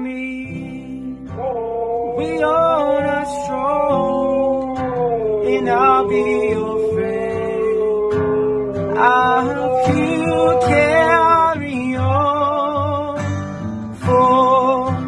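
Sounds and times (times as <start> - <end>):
acoustic guitar strumming: 0.0 - 15.0
man singing: 0.0 - 15.0
dog howling: 1.2 - 12.9.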